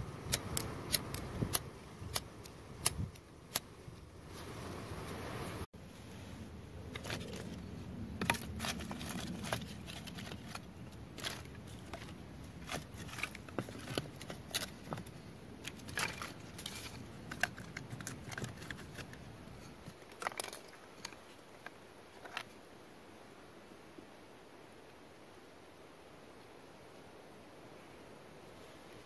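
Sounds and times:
small sticks clicking and snapping: 0:00.2 - 0:03.7, 0:08.2 - 0:19.2
rustling: 0:00.3 - 0:22.6.

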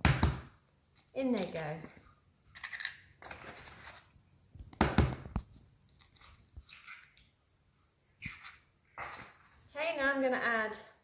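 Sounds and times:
eggshells cracking and crunching: 0:02.5 - 0:04.0, 0:04.7 - 0:07.4.

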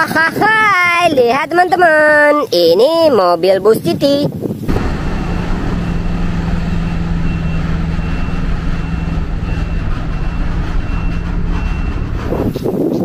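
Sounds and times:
high electronic warning beep: 0:04.7 - 0:12.8
bus engine humming: 0:04.7 - 0:13.0.

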